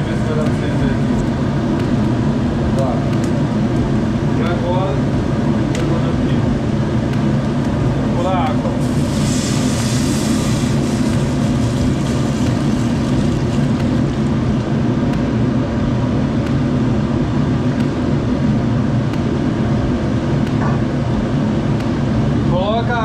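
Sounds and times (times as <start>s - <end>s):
exhaust hood fan drone: 0.0s - 23.0s
water hissing in hot pot: 8.8s - 14.4s.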